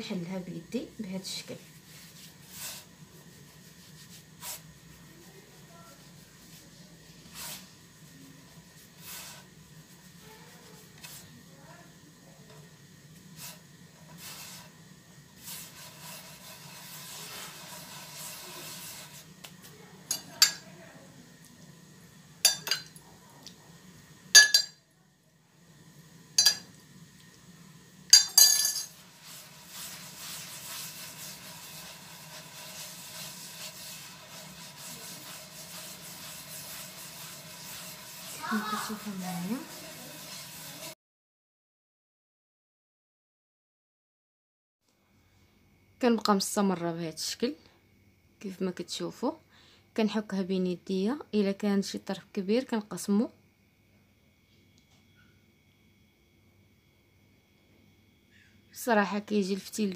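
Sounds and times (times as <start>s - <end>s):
hands rubbing grains in clay dish: 1.3s - 11.4s, 13.4s - 14.7s, 15.4s - 19.8s, 29.0s - 40.9s
sharp clinks against dish: 24.4s - 24.8s, 28.2s - 28.9s.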